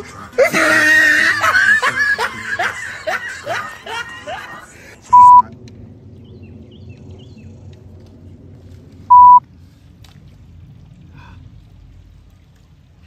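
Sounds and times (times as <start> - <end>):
faint low rumble: 1.3 - 13.0
censor bleep: 5.1 - 5.4, 9.1 - 9.4.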